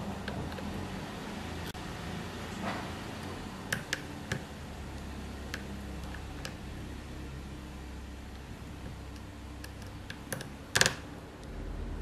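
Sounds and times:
low hum: 4.5 - 12.0.

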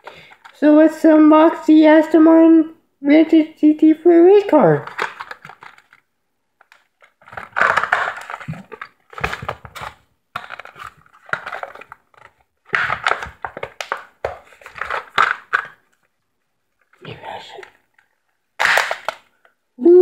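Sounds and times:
blister pack crinkling: 4.8 - 16.1, 16.8 - 19.6.

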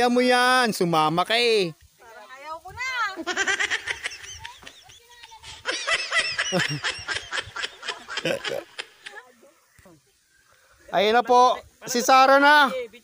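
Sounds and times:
people laughing: 3.2 - 9.2.

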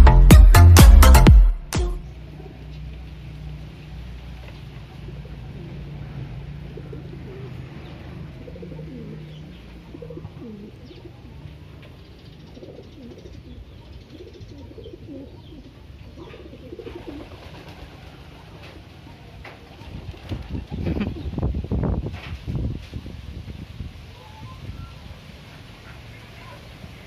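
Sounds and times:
pigeon cooing: 6.6 - 19.0.

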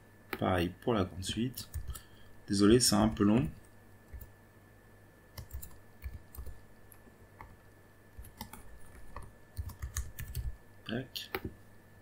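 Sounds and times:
keyboard typing: 1.6 - 2.1, 3.6 - 4.3, 5.4 - 6.6, 8.2 - 10.6.

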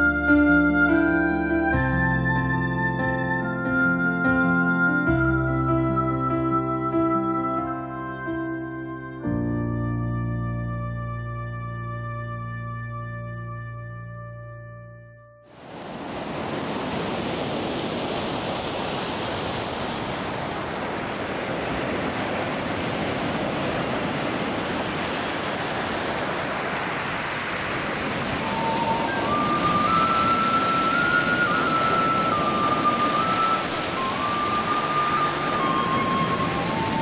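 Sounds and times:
water rushing: 15.5 - 37.0.

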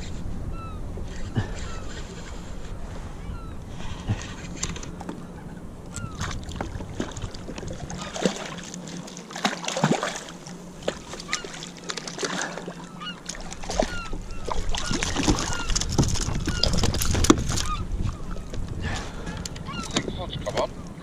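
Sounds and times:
fish splashing in water: 6.2 - 17.8.

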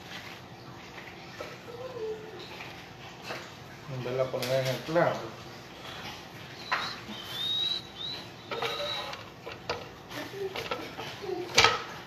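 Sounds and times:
high squeak: 6.8 - 9.3
cake board and turntable clatter: 8.5 - 12.0.

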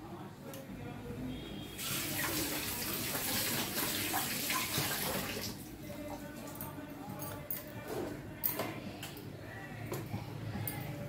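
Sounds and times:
water running from tap: 1.8 - 5.6.

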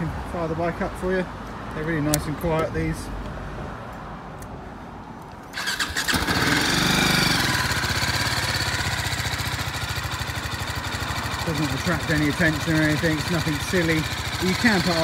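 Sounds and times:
electric starter whine: 5.6 - 8.2
motorcycle engine idling: 5.6 - 15.0.

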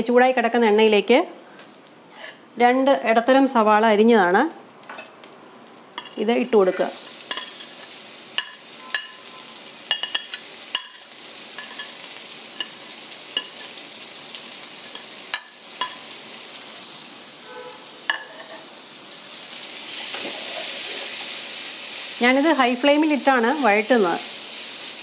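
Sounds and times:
onions sizzling in hot oil: 4.2 - 25.0
spatula clinking against wok: 7.3 - 9.3.

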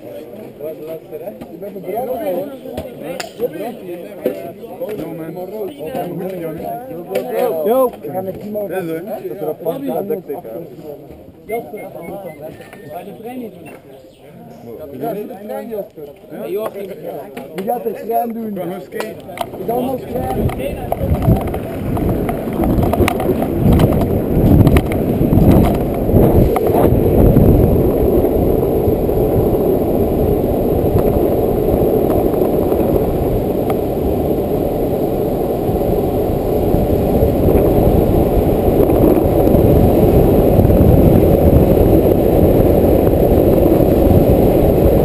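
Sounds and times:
longboard wheels rolling on asphalt: 19.2 - 45.0
wind buffeting microphone: 19.4 - 45.0.

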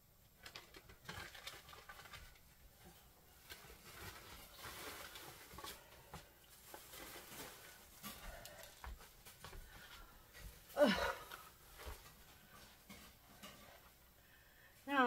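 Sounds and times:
plastic bag rustling: 0.4 - 14.2.

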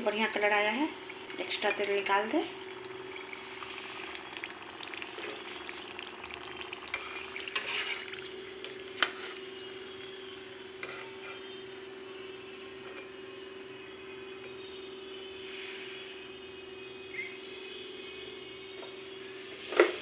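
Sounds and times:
pastries sizzling in hot oil: 0.0 - 11.9
low hum: 0.0 - 12.8
metal spatula scraping a pan: 6.9 - 8.1, 9.0 - 9.5, 10.8 - 11.6.

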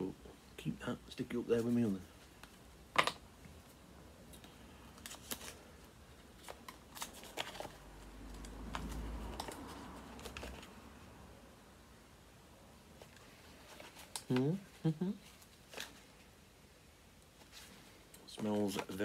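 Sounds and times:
paper rustling: 4.9 - 10.9, 17.4 - 19.0.

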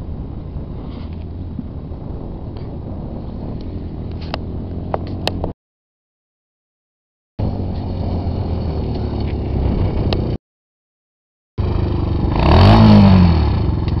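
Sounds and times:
quad bike engine revving: 11.6 - 14.0.

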